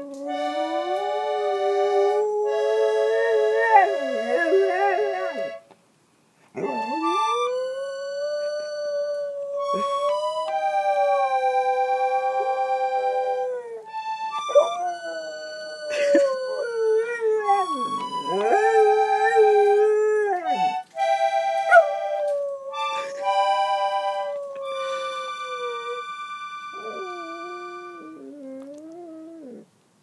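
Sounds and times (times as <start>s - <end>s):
dog howling: 0.0s - 5.4s, 6.6s - 20.8s, 21.7s - 29.6s
accordion chords: 0.3s - 5.7s, 6.6s - 7.6s, 9.6s - 15.8s, 17.4s - 28.0s.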